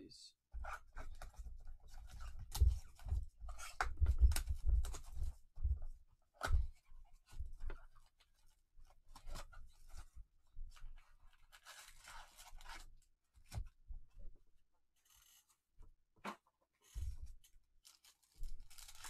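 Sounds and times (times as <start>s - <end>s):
plastic wrap crinkling: 17.8s - 19.0s.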